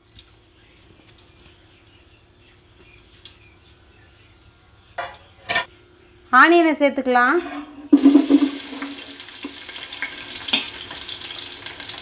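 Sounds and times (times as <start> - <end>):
spices sizzling in oil: 7.9 - 12.0.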